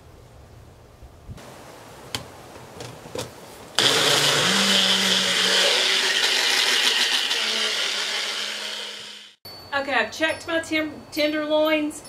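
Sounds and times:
blender motor running: 0:03.8 - 0:09.4.

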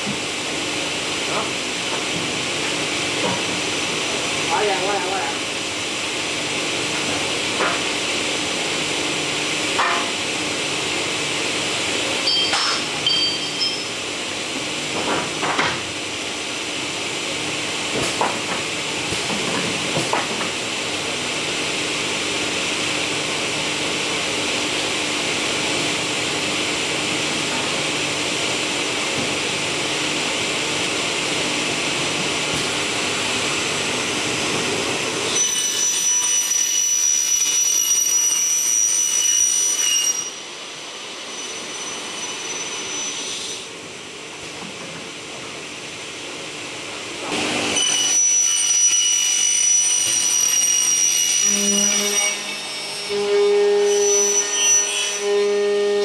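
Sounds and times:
high-pitched motor whine: 0:49.6 - 0:56.0.

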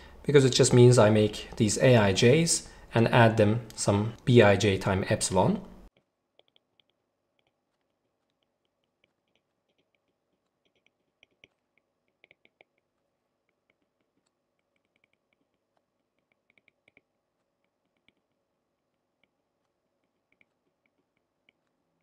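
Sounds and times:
stylus tapping tablet screen: 0:05.9 - 0:22.0.

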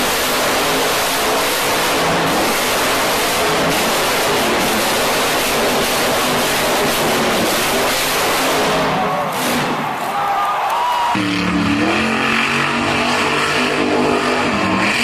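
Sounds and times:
truck engine revving hard: 0:00.0 - 0:10.0, 0:10.9 - 0:15.0.

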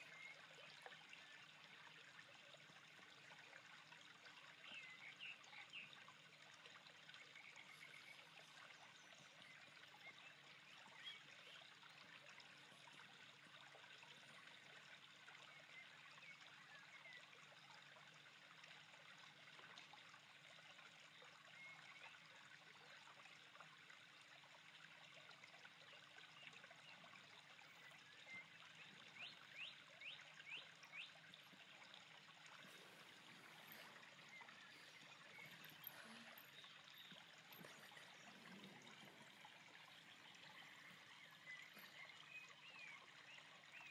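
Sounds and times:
water trickling and lapping: 0:00.0 - 0:43.9.

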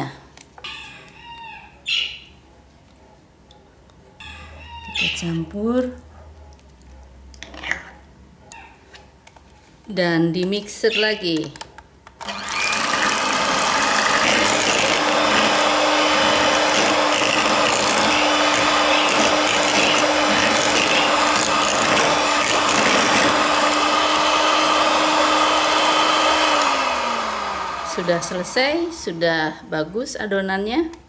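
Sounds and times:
electric hand mixer running: 0:12.2 - 0:29.2.

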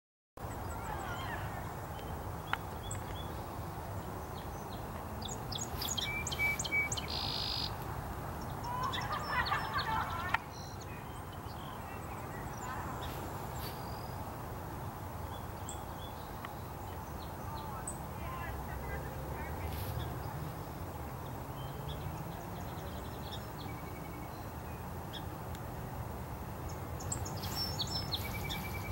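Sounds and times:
birds calling and chirping: 0:00.4 - 0:25.4, 0:26.5 - 0:28.9.

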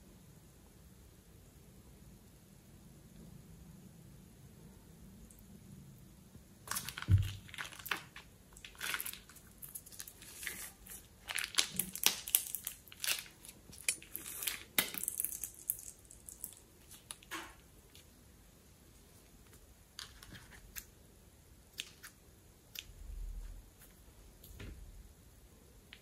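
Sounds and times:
plastic bag crinkling: 0:06.7 - 0:17.4.

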